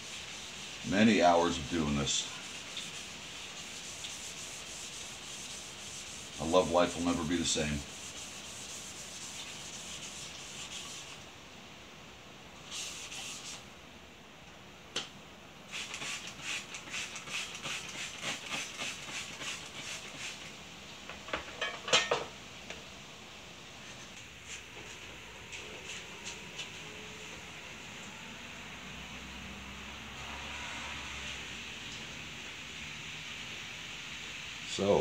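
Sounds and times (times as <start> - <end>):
sandpaper rubbing on metal: 0.0 - 11.2, 12.6 - 13.6, 15.7 - 20.5
spray bottle squirting: 12.6 - 13.6, 15.7 - 20.5.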